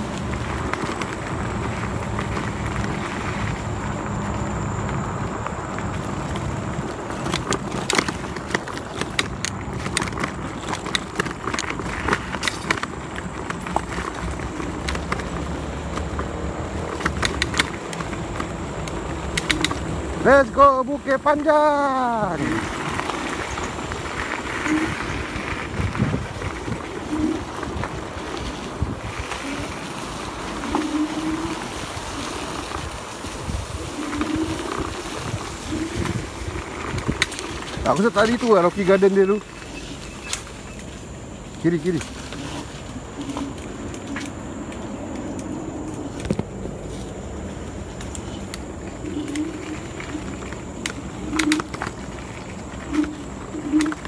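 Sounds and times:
scooter clicking and rattling: 0:00.0 - 0:54.0
wind and tyres rumbling: 0:00.0 - 0:54.0
wind buffeting microphone: 0:22.4 - 0:38.9.

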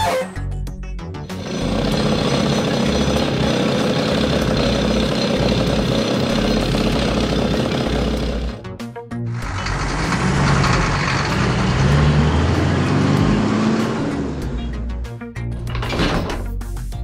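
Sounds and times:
engine rumble: 0:01.2 - 0:08.7, 0:09.3 - 0:16.3
excavator mechanical rattle: 0:01.3 - 0:08.6, 0:09.4 - 0:13.2, 0:15.5 - 0:16.6.

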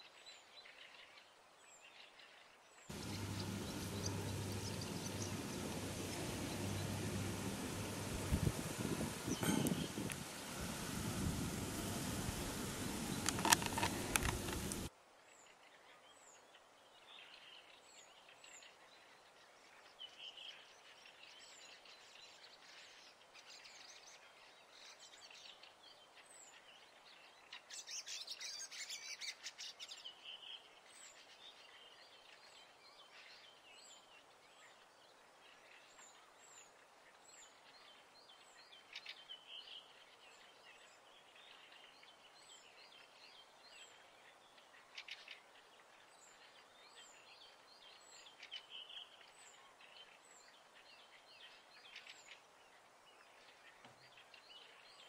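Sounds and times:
soft hiss: 0:00.1 - 0:16.0
birds chirping: 0:02.9 - 0:14.9.

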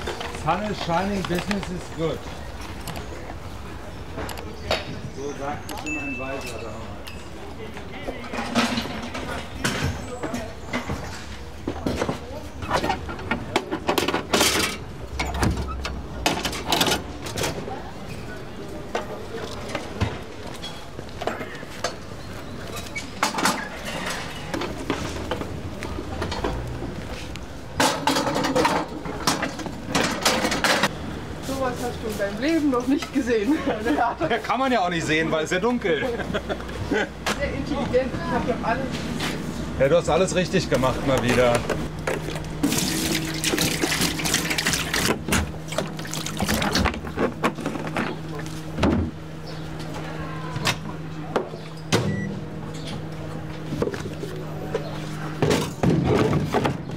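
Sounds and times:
table clattering on paving: 0:27.8 - 0:30.9.

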